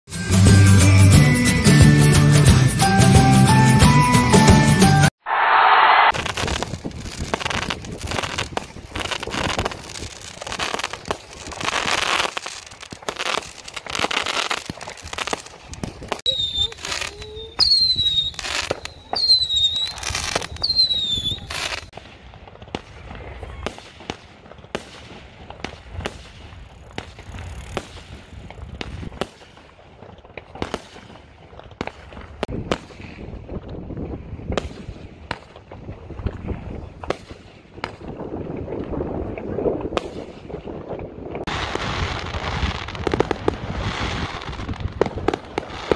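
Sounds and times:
fireworks bangs and crackles: 0.4s - 45.9s
whistling rockets: 5.0s - 29.8s.

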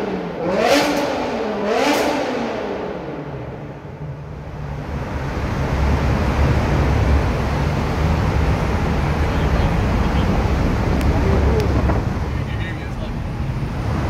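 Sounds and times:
engine drone in tunnel: 0.0s - 14.0s
road and tunnel noise: 0.0s - 14.0s.

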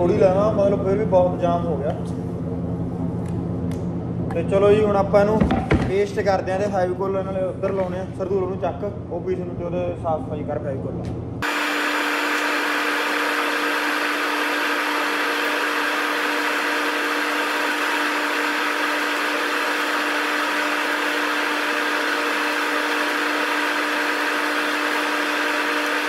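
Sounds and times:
machine hum with rushing noise: 10.8s - 26.0s.

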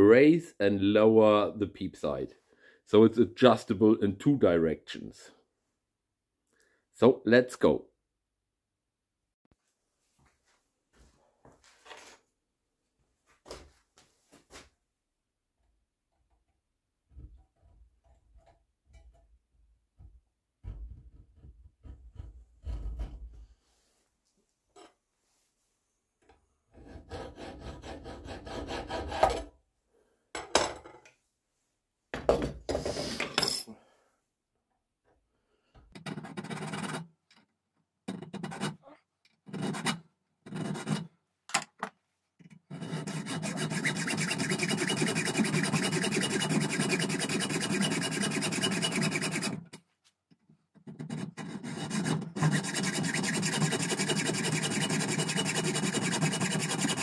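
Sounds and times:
tool scraping metal: 42.7s - 49.7s, 51.0s - 57.0s.

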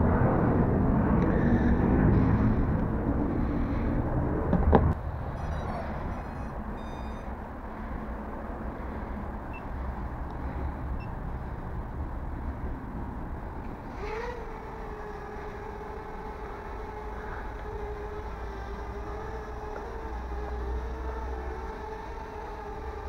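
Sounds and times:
toy drone motors whining: 5.3s - 7.4s, 13.8s - 23.0s
short high-pitched electronic beeps: 5.4s - 7.3s.

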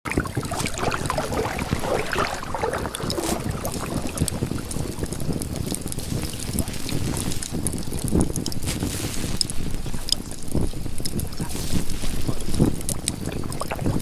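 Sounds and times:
water sloshing and splashing: 0.0s - 14.0s
wind rumbling on microphone: 0.0s - 14.0s.

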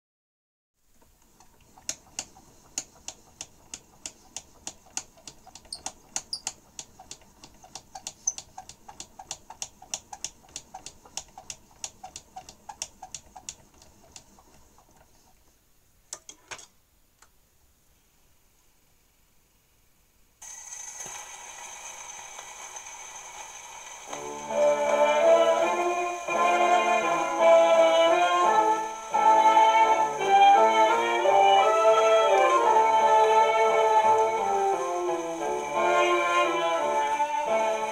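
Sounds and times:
gramophone motor ticking: 1.4s - 14.5s.

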